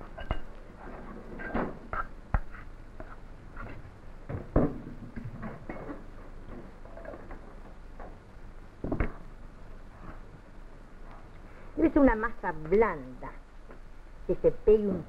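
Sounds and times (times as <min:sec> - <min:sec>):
hands working dough: 0:01.8 - 0:03.8.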